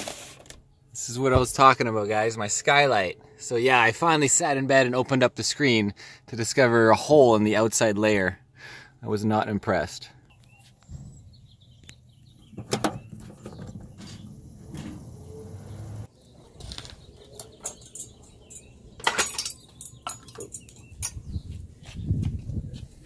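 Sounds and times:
metal stand clanking: 17.4s - 21.3s.

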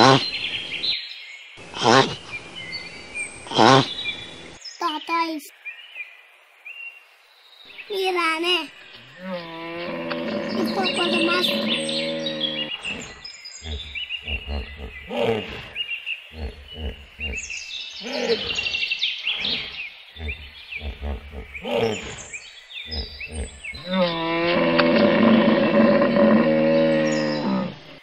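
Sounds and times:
hippopotamus grunts and bellow: 0.0s - 0.6s, 1.6s - 2.7s, 3.4s - 4.3s, 9.0s - 28.0s
faint birds chirping: 0.0s - 28.0s.

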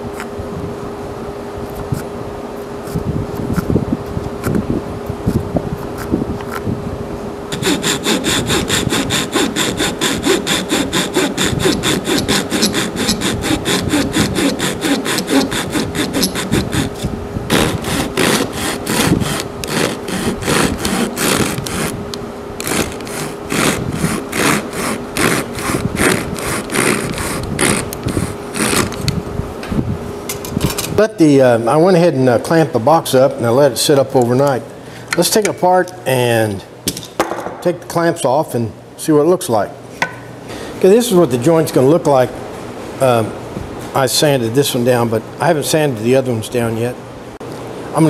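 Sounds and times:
fan hum: 0.0s - 48.0s
handsaw cutting wood: 7.5s - 22.0s, 22.6s - 29.0s.

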